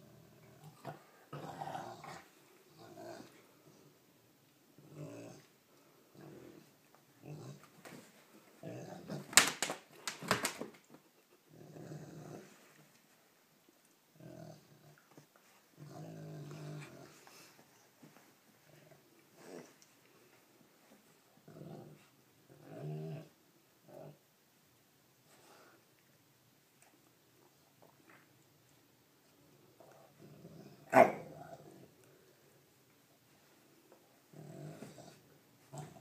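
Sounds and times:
dogs play-growling: 0.0 - 4.0, 4.7 - 9.4, 11.2 - 13.0, 14.1 - 24.2, 29.5 - 32.5, 33.4 - 36.0.

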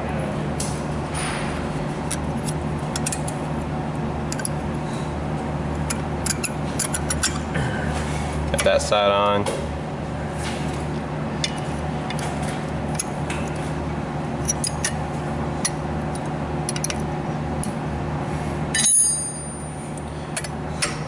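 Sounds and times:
steady background hum: 0.0 - 21.0
metal clank ringing: 18.8 - 19.7.

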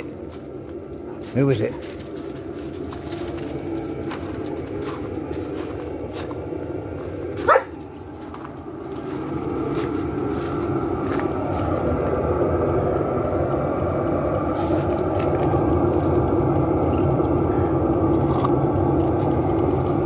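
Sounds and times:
diesel heater running: 0.0 - 20.0
dog bark: 7.4 - 7.8.

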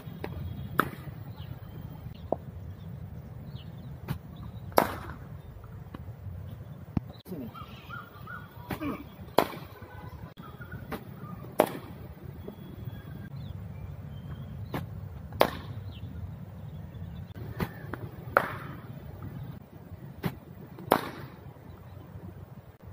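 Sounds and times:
cricket ball cracks: 14.8 - 15.8, 20.2 - 21.4.

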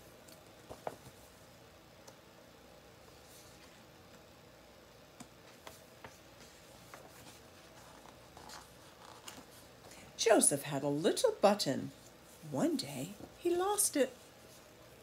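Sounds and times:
paper rustling: 5.4 - 9.7.

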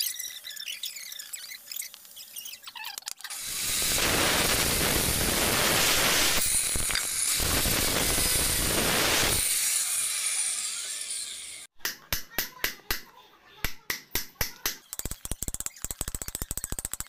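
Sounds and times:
angle grinder grinding wood: 0.0 - 11.7.

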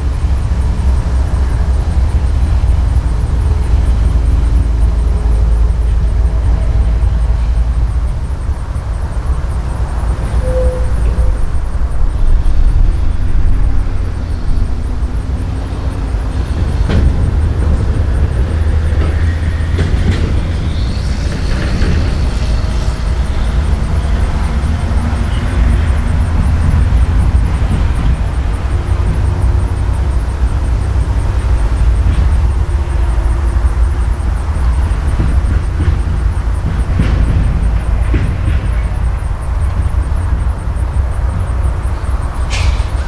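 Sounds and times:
locomotive engine rumble: 0.0 - 43.0
train wheels on rail: 0.0 - 43.0.

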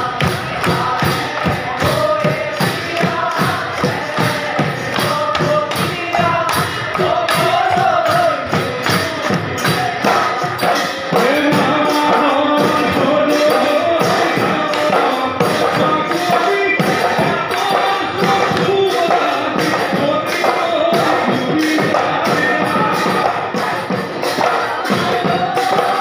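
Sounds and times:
dhol drums beating: 0.0 - 26.0
men singing: 0.0 - 26.0.

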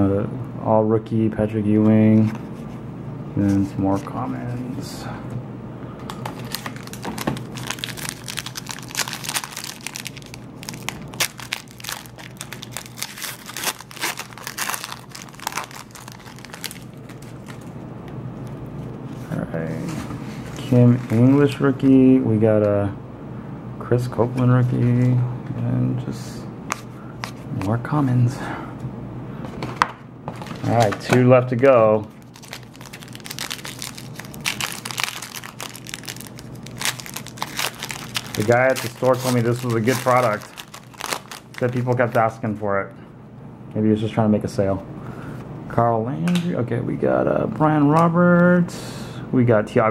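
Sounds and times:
foil wrapper crinkling: 6.2 - 17.7, 32.0 - 42.4.

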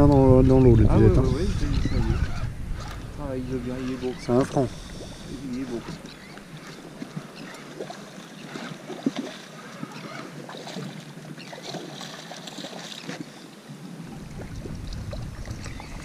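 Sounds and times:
wind on microphone: 0.0 - 7.3, 13.9 - 16.0
water lapping around boat: 0.0 - 16.0.

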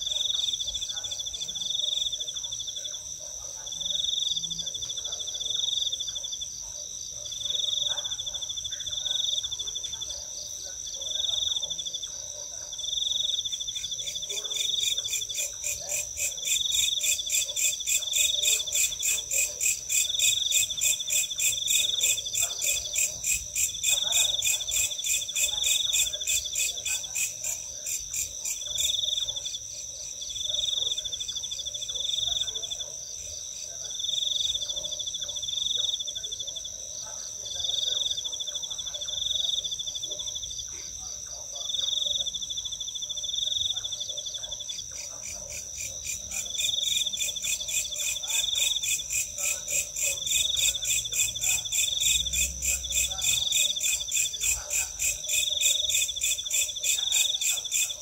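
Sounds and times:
crickets trilling: 41.7 - 58.0.

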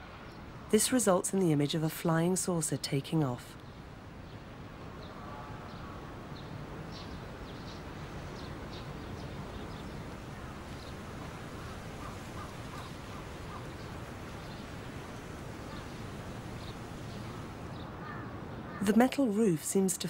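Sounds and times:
low bird calls: 5.0 - 19.0
birds chirping: 5.0 - 19.3.

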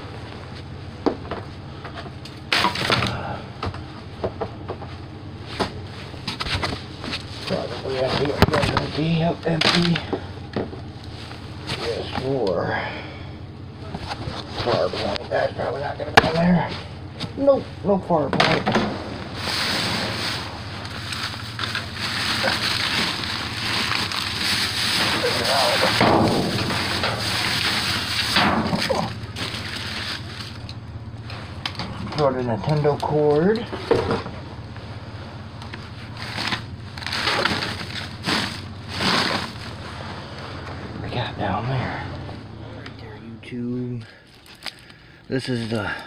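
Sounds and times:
plastic bags rustling: 19.3 - 30.8, 36.0 - 40.2, 44.2 - 45.0.

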